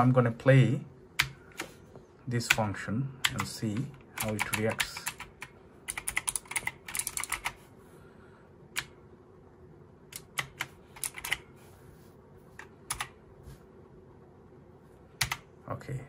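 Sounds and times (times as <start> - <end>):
mechanical keyboard keystrokes: 2.4 - 7.6, 10.1 - 11.5, 12.6 - 13.2, 15.2 - 15.5.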